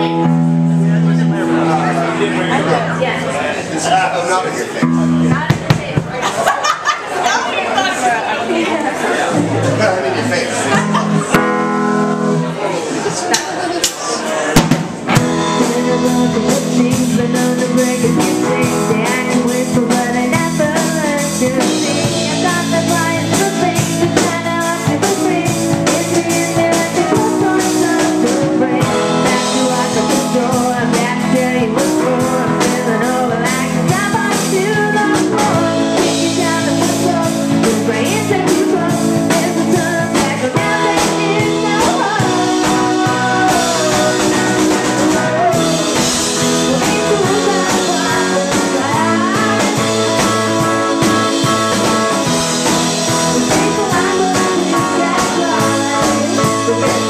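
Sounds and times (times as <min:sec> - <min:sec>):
live band playing: 0:00.0 - 0:57.0
woman singing: 0:15.2 - 0:57.0.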